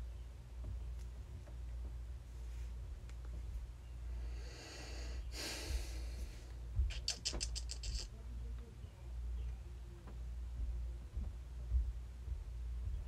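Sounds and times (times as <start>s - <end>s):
low room hum: 0.0s - 13.0s
sharp breath through nose: 4.2s - 6.4s.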